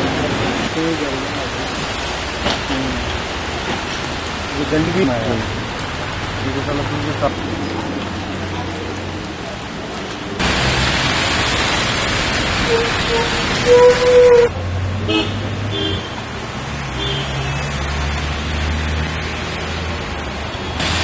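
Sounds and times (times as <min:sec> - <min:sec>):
rain hissing on street: 0:00.0 - 0:21.0
traffic rumble: 0:00.0 - 0:21.0
tyres spraying on wet road: 0:00.0 - 0:21.0
vehicle horn: 0:12.7 - 0:14.5, 0:15.1 - 0:16.2.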